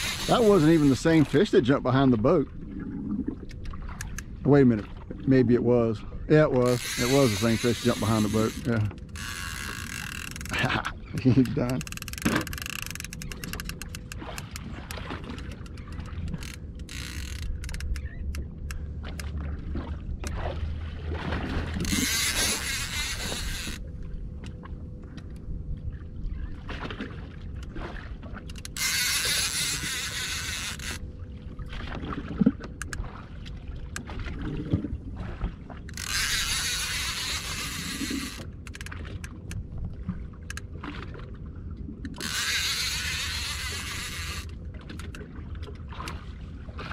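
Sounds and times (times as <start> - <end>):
fishing reel clicks: 0.0 - 1.3, 6.6 - 10.6, 11.2 - 14.7, 15.3 - 19.3, 21.7 - 23.8, 28.5 - 31.0, 35.9 - 39.6, 42.1 - 45.2
outboard motor running: 0.0 - 46.9.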